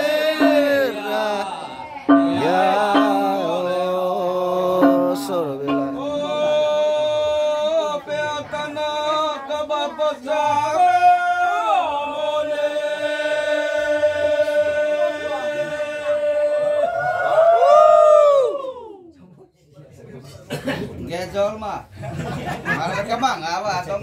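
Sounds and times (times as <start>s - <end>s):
person singing sliding notes: 0.0s - 6.9s.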